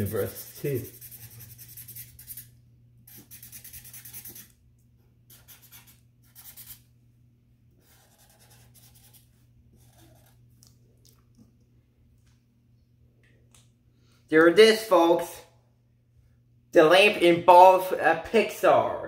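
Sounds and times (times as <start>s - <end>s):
marker scratching on paper: 0.0s - 2.5s, 3.1s - 4.5s, 5.3s - 6.8s, 7.8s - 10.4s.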